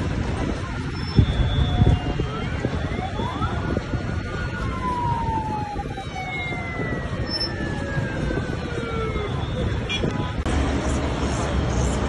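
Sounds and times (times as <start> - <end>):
low outdoor rush: 0.0 - 12.0
siren wailing: 1.0 - 10.0.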